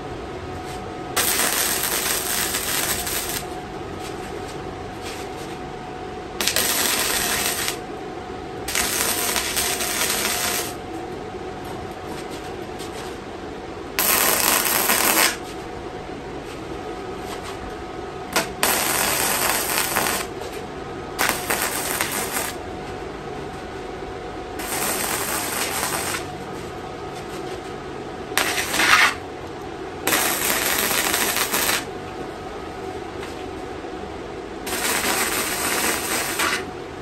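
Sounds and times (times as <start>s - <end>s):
welding arc crackling: 1.2s - 3.5s, 6.4s - 7.8s, 8.6s - 10.8s, 14.0s - 15.4s, 18.3s - 20.4s, 21.2s - 22.6s, 24.6s - 26.4s, 28.4s - 29.2s, 30.1s - 31.9s, 34.7s - 36.7s.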